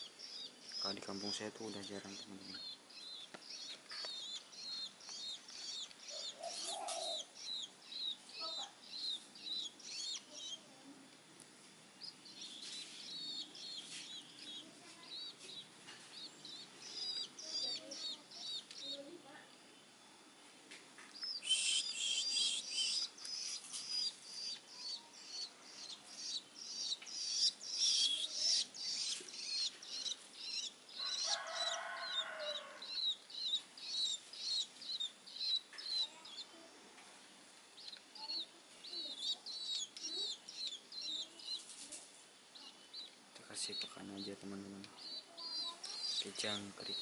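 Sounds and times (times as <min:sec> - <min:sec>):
nestlings begging chirps: 0:00.0 - 0:10.8, 0:11.9 - 0:20.0, 0:21.0 - 0:47.0
lower longer bird call: 0:21.4 - 0:23.1.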